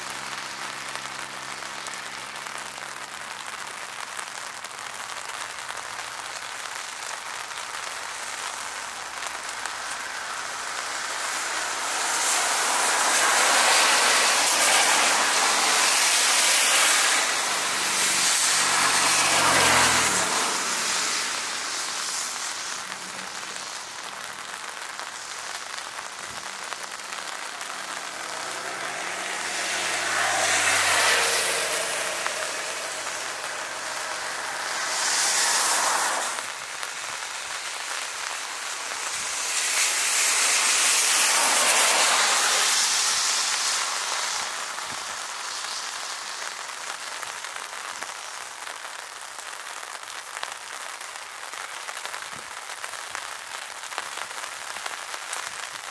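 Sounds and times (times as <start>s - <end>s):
rain hissing: 0.0s - 55.9s
jet engine rushing: 10.4s - 24.0s, 26.4s - 36.6s.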